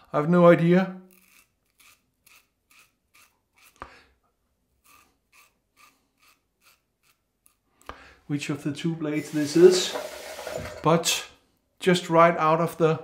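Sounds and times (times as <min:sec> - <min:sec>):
razor click: 0:01.1 - 0:03.9
razor rasping on stubble: 0:01.1 - 0:03.9, 0:04.7 - 0:07.6.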